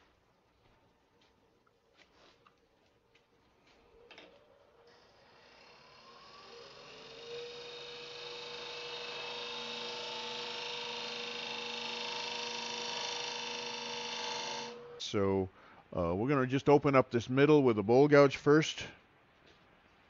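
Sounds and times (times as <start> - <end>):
wood lathe cutting hiss: 4.9 - 15.2.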